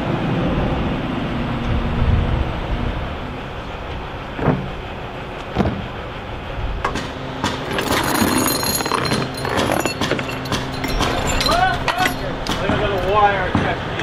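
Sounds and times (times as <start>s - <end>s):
crane engine humming: 0.0s - 14.0s
rigging wires clinking: 7.4s - 13.8s.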